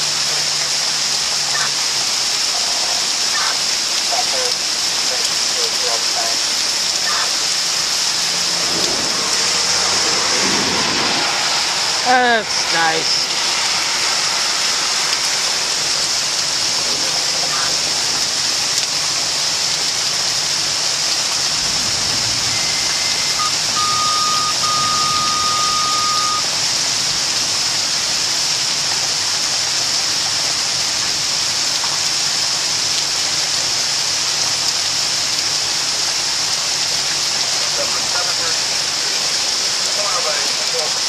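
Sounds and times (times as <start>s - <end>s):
heavy rain pouring: 0.0s - 41.0s
faint high steady tone: 22.5s - 26.5s.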